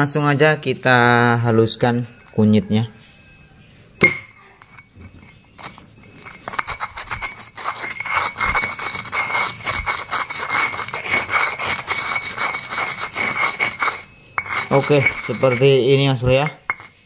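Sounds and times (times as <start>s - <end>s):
stone pestle grinding in mortar: 4.6s - 17.0s.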